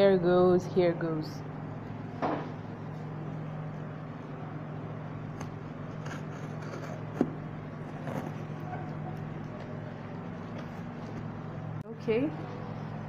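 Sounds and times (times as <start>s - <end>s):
steady low hum: 0.0s - 13.0s
tool scraping packing tape: 6.0s - 7.2s.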